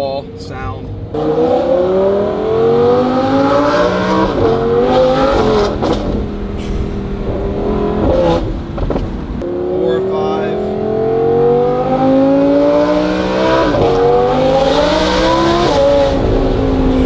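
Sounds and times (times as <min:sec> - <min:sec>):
car engine accelerating hard: 0:00.6 - 0:17.0.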